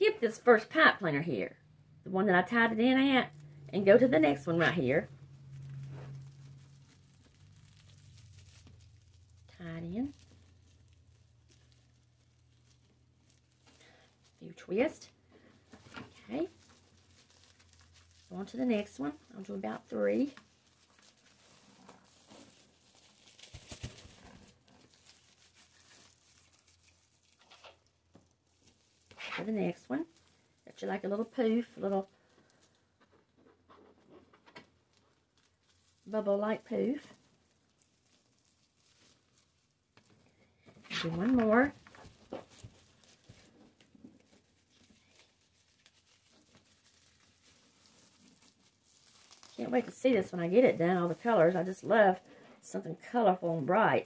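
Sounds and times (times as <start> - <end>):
mesh rustling and crinkling: 2.4 - 54.0.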